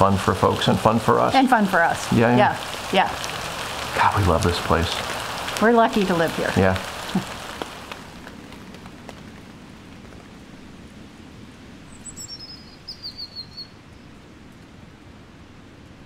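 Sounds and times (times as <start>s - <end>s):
faint outdoor hiss: 0.0s - 16.0s
songbird singing: 11.7s - 14.3s.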